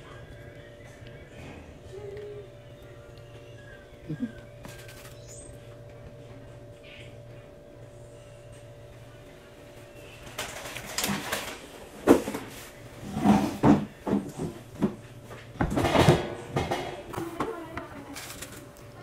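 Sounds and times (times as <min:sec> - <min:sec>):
knocks and clatters: 0:13.2 - 0:17.6.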